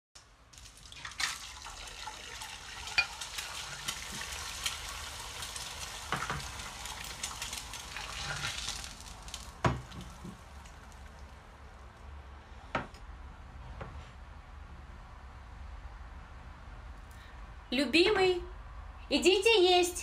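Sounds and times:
food sizzling in a frying pan: 0.6 - 11.1.

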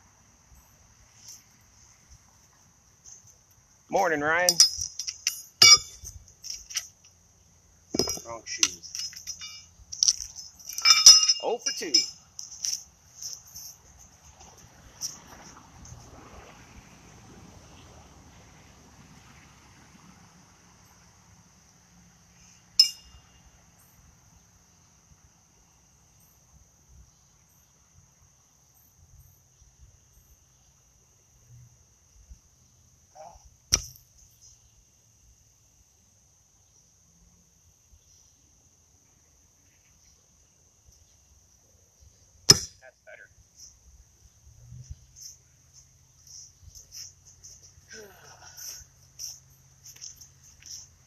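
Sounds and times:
insects trilling: 0.0 - 17.1, 20.2 - 51.0
horseshoe knocking on stake: 4.6 - 6.8, 7.9 - 10.2, 33.7 - 34.0, 42.5 - 42.8.

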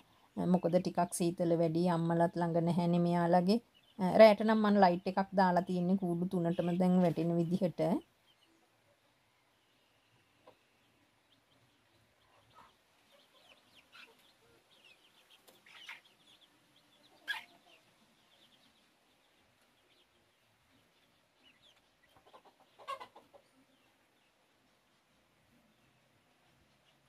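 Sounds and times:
young chickens peeping and clucking: 0.0 - 27.0.

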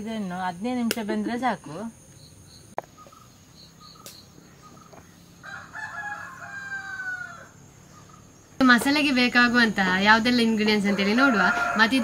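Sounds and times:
rooster crowing: 5.4 - 7.6, 10.8 - 12.0.

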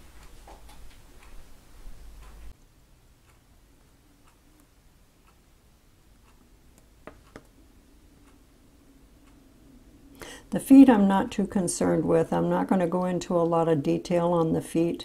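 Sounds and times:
paintbrush tapping on canvas: 7.0 - 7.5.

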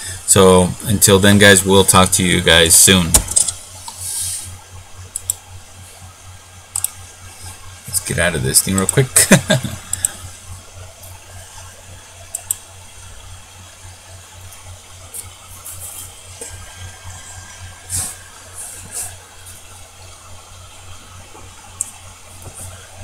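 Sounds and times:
low electrical hum: 0.0 - 23.0
light hiss: 3.1 - 6.0, 14.4 - 23.0.

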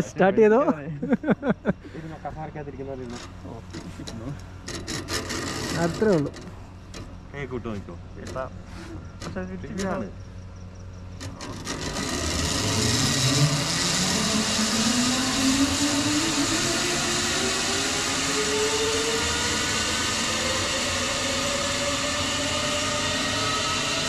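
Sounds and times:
zipline pulleys whirring on cable: 3.1 - 6.5, 11.2 - 24.0.

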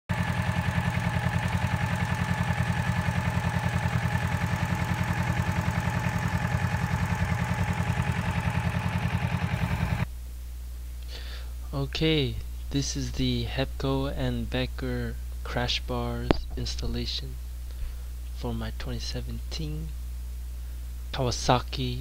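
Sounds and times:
motorcycle engine idling: 0.1 - 10.1.

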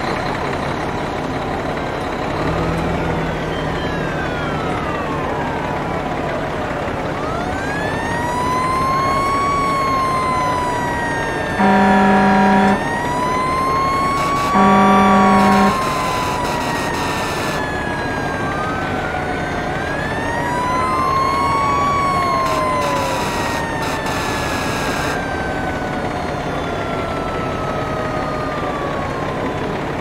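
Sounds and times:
fire engine sirens wailing: 0.0 - 30.0
air horn blast: 11.6 - 12.9, 14.1 - 17.7, 22.4 - 25.2.

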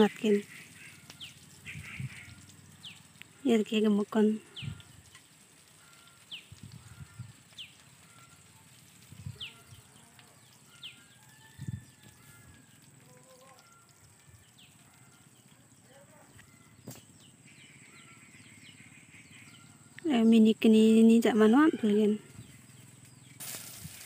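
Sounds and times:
bird chirps: 9.2 - 21.1
quiet hiss: 23.0 - 24.0.

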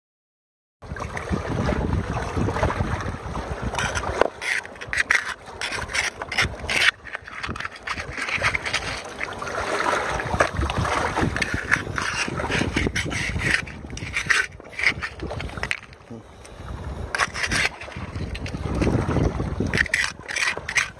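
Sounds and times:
trowel scraping wet gravel: 3.8 - 9.8, 11.1 - 16.0, 17.1 - 19.0, 19.7 - 20.9.

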